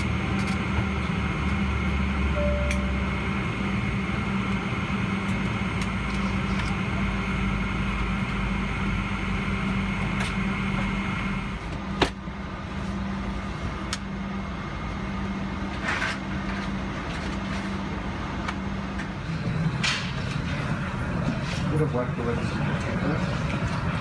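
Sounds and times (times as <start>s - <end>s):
high whine: 0.0s - 11.6s.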